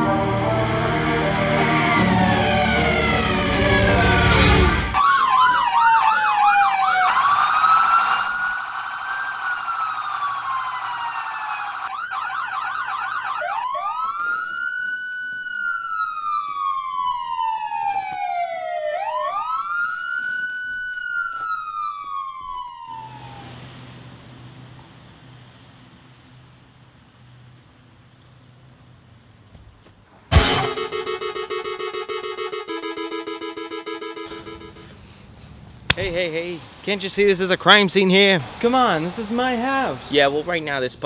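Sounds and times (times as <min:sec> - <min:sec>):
music: 0:00.0 - 0:05.0, 0:30.3 - 0:34.8
police siren yelping and wailing: 0:00.0 - 0:23.6, 0:30.3 - 0:35.0.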